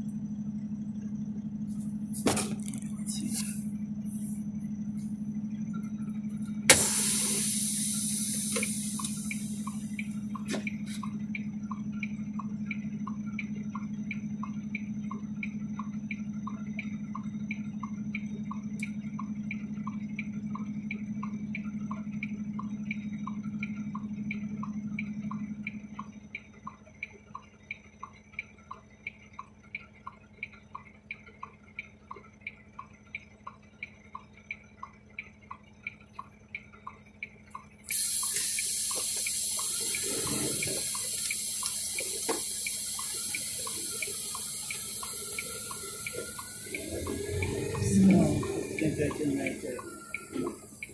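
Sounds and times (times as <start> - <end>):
steady low hum: 0.0 - 50.9
indicator flasher ticking: 6.4 - 50.9
hiss: 6.7 - 9.8, 37.9 - 50.9.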